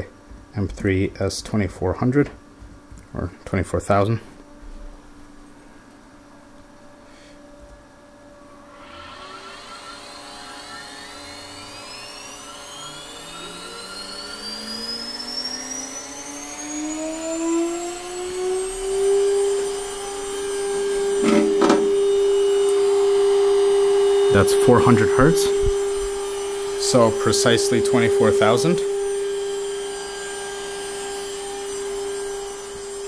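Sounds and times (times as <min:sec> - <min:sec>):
spindle motor whine rising: 0:06.8 - 0:33.0.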